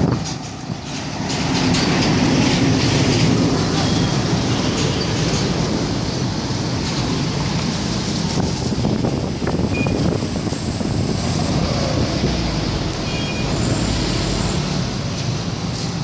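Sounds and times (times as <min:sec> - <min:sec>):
street noise: 0:00.0 - 0:16.0
wind on microphone: 0:07.4 - 0:13.6.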